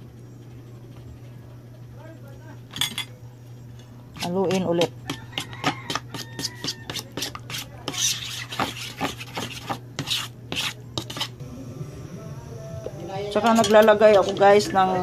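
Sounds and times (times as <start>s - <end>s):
spoon scraping metal bowl: 4.2s - 11.4s.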